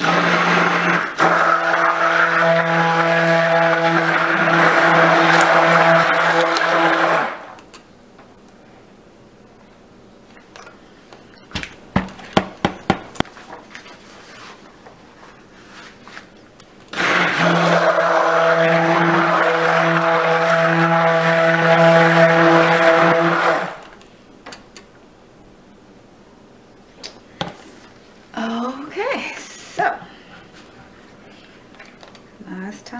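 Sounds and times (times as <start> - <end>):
stick blender motor running: 0.0 - 7.6, 16.9 - 23.8
sharp knocks: 11.9 - 13.2.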